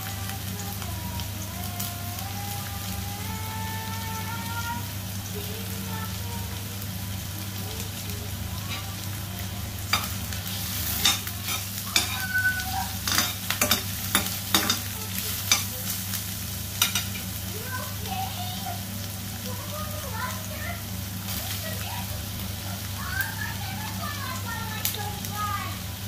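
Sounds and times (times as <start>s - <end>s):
aromatics sizzling in oil: 0.0s - 26.0s
metal spoon scraping a wok: 9.9s - 12.3s, 13.0s - 15.7s.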